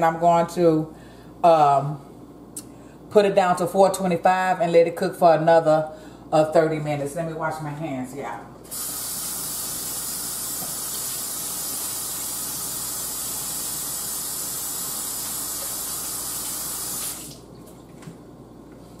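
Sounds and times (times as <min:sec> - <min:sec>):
faucet running into sink: 0:08.7 - 0:17.5.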